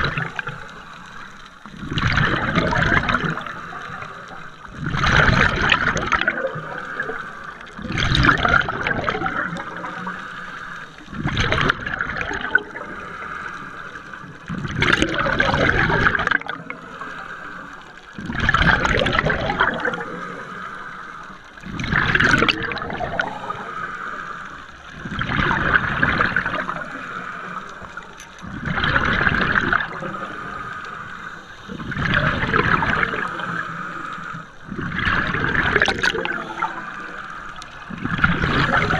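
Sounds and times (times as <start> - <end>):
regulator bubbling exhalation: 0.0 - 0.7, 1.6 - 20.6, 21.6 - 38.9
regulator hiss: 8.8 - 11.2, 19.6 - 21.7, 22.7 - 25.1, 29.5 - 38.9.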